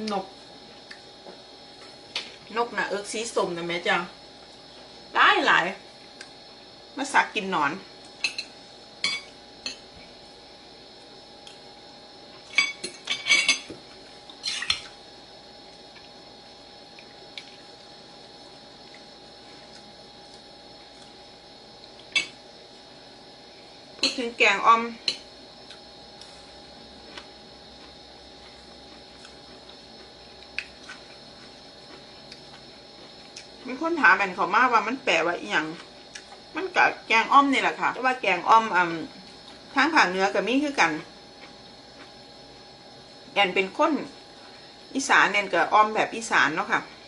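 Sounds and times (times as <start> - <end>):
faint room hum: 0.0 - 47.0
cutlery clinking and scraping on plate: 14.4 - 14.9.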